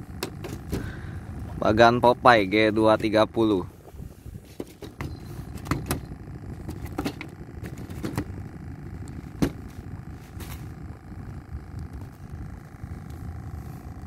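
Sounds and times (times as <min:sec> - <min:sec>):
fish knocking and clattering on deck: 0:04.5 - 0:08.3.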